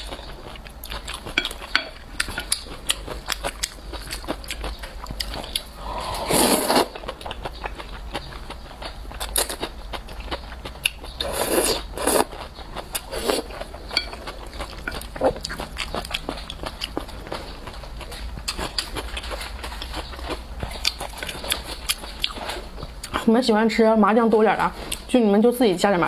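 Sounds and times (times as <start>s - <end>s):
person slurping noodles: 5.8s - 7.0s.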